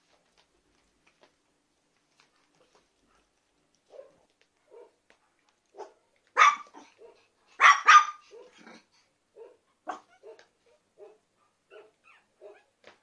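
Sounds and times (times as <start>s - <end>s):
puppy yapping: 5.8s - 8.8s, 9.4s - 12.7s.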